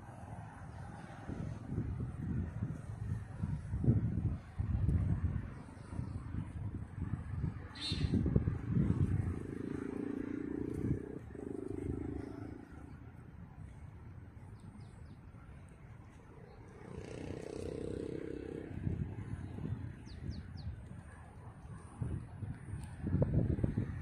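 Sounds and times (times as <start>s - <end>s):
wind rumbling on microphone: 0.0s - 24.0s
faint high bird chirps: 7.7s - 8.2s
low steady drone: 8.4s - 14.4s.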